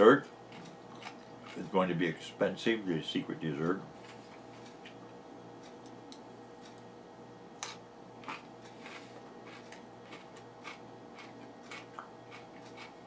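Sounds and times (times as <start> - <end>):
faint hum: 0.0 - 13.0
chewing: 0.2 - 1.8, 4.0 - 5.0, 7.7 - 13.0.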